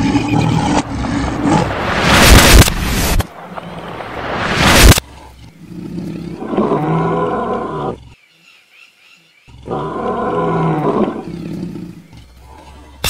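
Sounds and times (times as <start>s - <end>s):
lion roaring: 0.0s - 2.6s, 4.6s - 8.2s, 9.5s - 13.0s.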